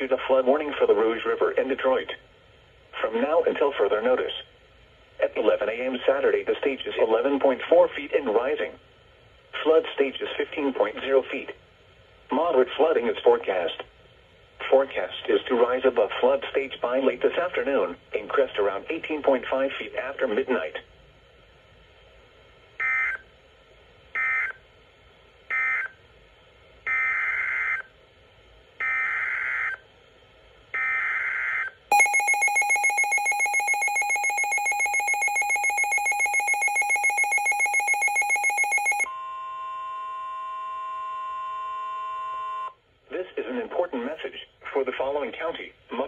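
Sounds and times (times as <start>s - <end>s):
steady warning alarm tone: 30.8s - 42.7s
buzzing digital data tones: 31.9s - 39.1s
pulsing electronic alert tone: 31.9s - 39.1s.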